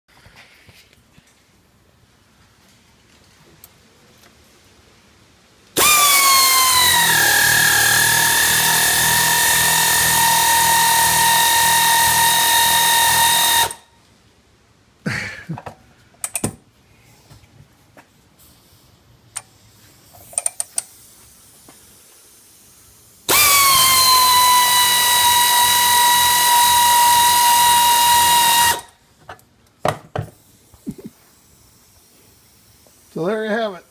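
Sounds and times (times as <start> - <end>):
pneumatic air ratchet whining: 5.8 - 13.8, 23.2 - 29.0.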